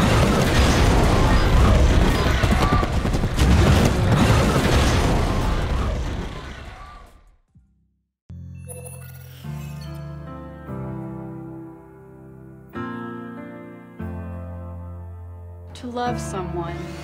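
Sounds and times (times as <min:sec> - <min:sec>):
booms and crackle with heavy bass: 0:00.0 - 0:07.2.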